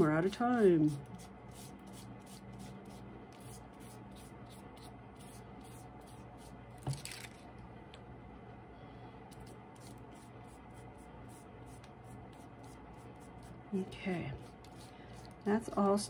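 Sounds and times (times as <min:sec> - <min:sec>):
foam brush rubbing glue on paper: 0:09.3 - 0:15.4.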